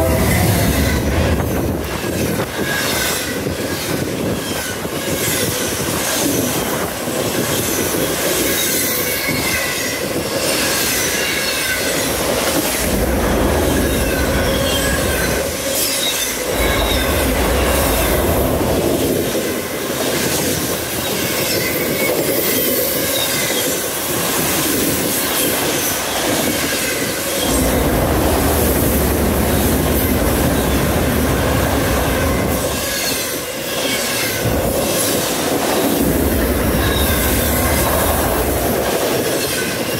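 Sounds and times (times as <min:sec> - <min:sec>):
deep rumble: 0:00.0 - 0:01.9, 0:12.0 - 0:15.7, 0:16.4 - 0:19.4, 0:27.4 - 0:32.8
train wheels clattering on rail: 0:00.0 - 0:39.9
high wheel squeal: 0:02.6 - 0:23.9, 0:36.4 - 0:38.6.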